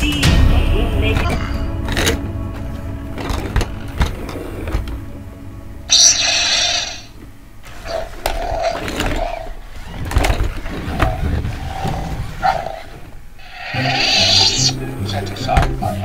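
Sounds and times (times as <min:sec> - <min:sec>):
hissing electronic sound effect: 0:05.9 - 0:07.1, 0:13.4 - 0:16.0
wheels rolling on hard floor: 0:07.6 - 0:14.4
toy motors whirring: 0:13.4 - 0:14.8.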